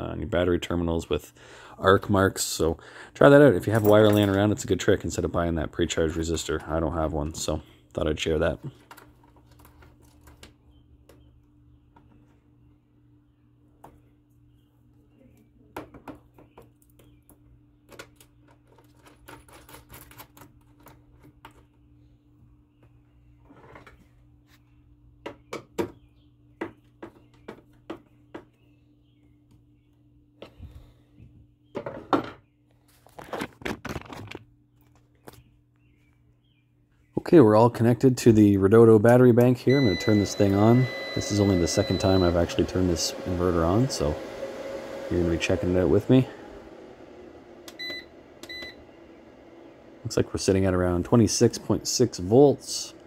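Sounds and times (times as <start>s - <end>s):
faint steady hum: 37.7s - 53.0s.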